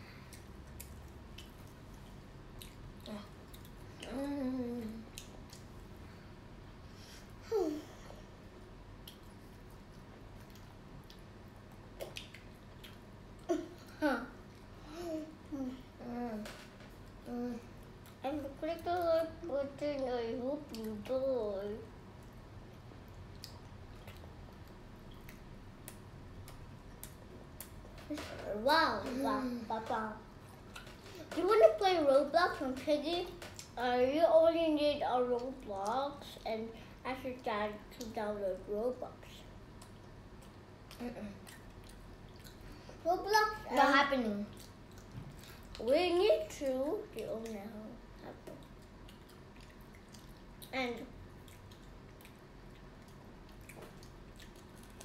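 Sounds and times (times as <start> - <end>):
children chewing crispy food: 0.0 - 6.3, 8.9 - 28.2, 39.4 - 43.0, 43.6 - 55.0
low steady hum: 0.0 - 55.0
chewing mouth sounds: 39.8 - 42.7, 48.4 - 55.0.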